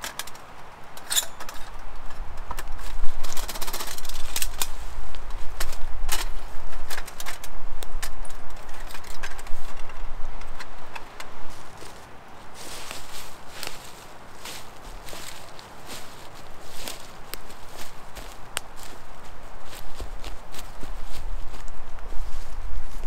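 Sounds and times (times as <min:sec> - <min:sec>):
rustling: 0:01.2 - 0:23.0
footsteps in leaf litter: 0:02.7 - 0:06.7, 0:11.4 - 0:23.0.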